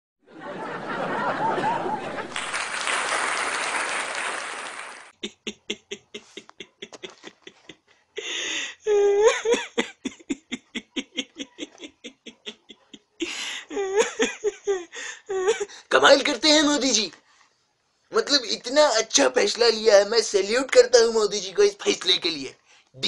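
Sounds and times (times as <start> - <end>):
crowd laughing and clapping: 0.3 - 7.8
man laughing hard: 5.2 - 15.8.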